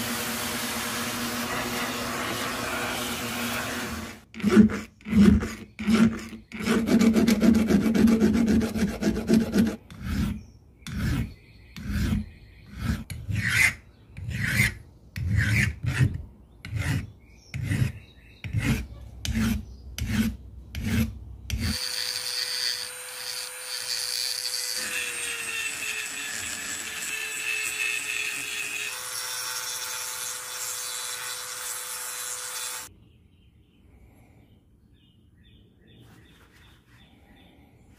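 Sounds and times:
rotary grinder whine: 0.0 - 4.2, 21.6 - 32.9
file rasping on steel: 1.0 - 32.9.

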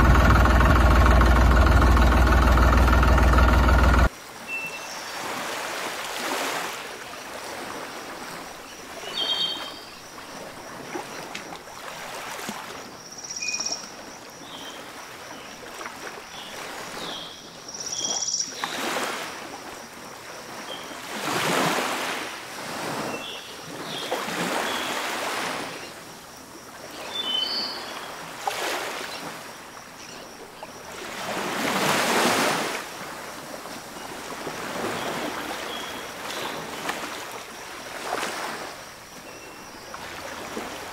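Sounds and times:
water gushing and splashing: 0.0 - 4.1.

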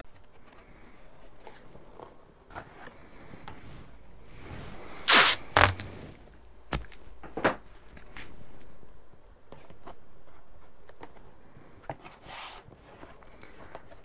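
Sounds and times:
masking tape ripping off roll: 5.0 - 6.0
tape rubbed onto cardboard: 5.0 - 6.1.

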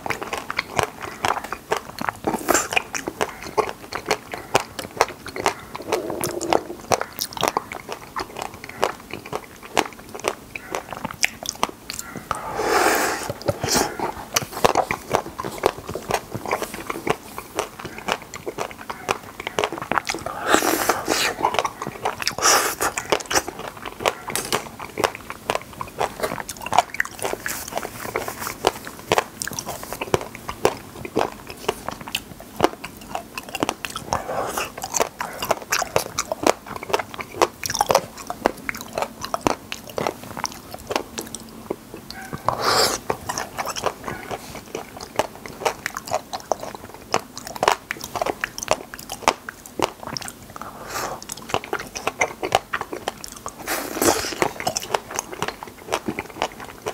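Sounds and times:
person chewing with wet smacks: 0.0 - 56.9.

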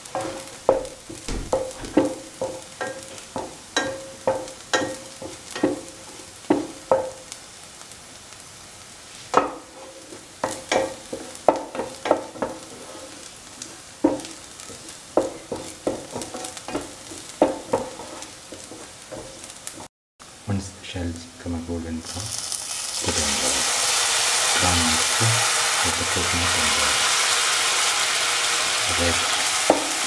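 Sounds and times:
shallots sizzling in oil: 0.0 - 30.0
utensil scraping and knocking pan: 0.1 - 3.0, 14.1 - 19.4.

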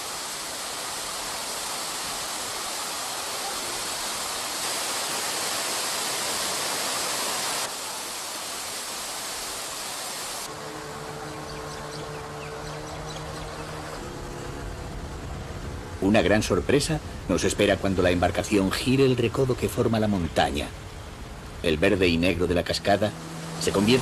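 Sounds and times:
waterfall pouring into pool: 0.0 - 10.6
small boat engine humming: 10.4 - 18.0, 20.8 - 24.0.

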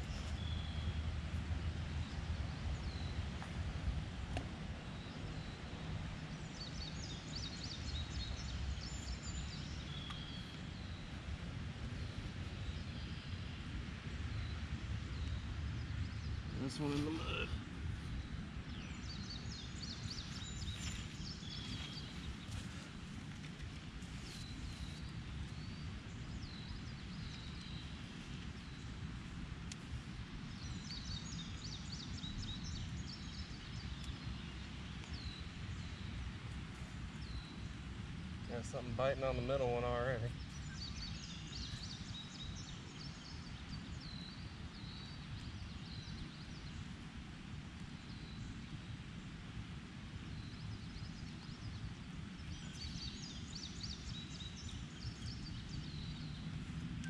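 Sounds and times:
low outdoor rumble: 0.0 - 57.0
songbird chirping: 4.9 - 11.3, 14.3 - 29.0, 38.4 - 46.8, 50.4 - 57.0.

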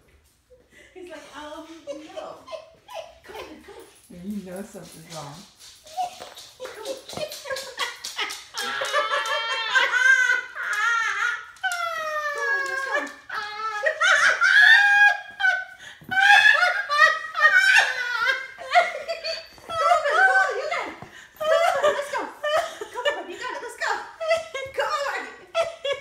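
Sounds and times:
woman laughing hard: 6.2 - 26.0.

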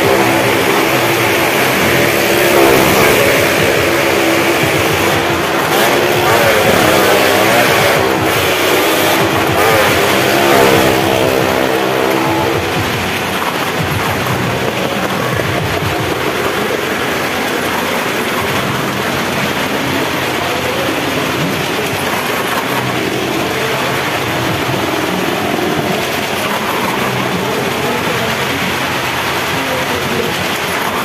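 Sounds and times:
engines running hard: 0.0 - 31.0
tyres rumbling on wooden planks: 0.0 - 31.0.

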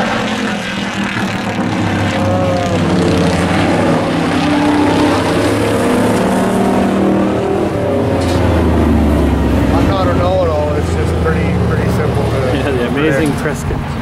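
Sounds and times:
race truck engines running: 0.0 - 14.0.

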